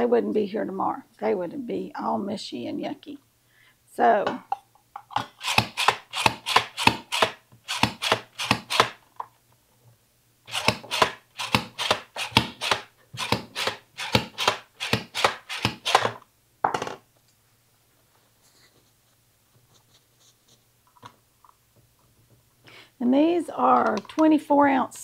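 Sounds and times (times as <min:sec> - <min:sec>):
slicer cutting mushrooms: 0:05.2 - 0:09.0, 0:10.5 - 0:16.2.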